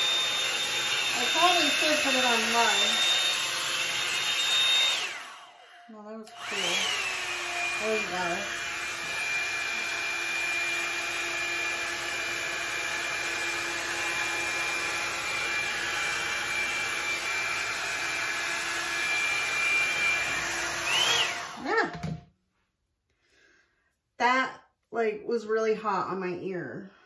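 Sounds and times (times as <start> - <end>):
motor winding down: 0.0 - 13.6, 19.0 - 21.7
hot-air brush whirring: 0.0 - 21.9.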